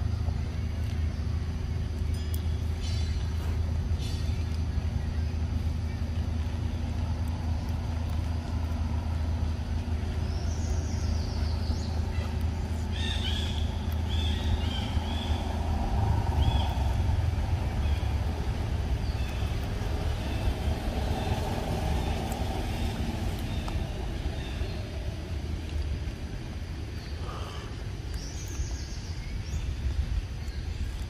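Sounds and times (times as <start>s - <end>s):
low background rumble: 0.0s - 31.0s.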